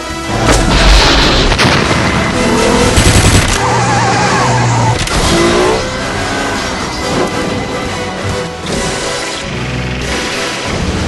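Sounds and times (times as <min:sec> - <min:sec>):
sharp cracks: 0:00.8 - 0:03.8
tyres screeching: 0:03.6 - 0:07.4.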